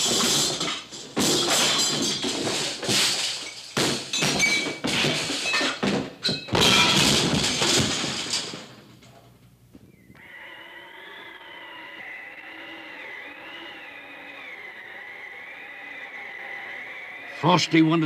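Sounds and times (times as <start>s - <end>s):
cartoon thuds and crashes: 0.0s - 8.4s.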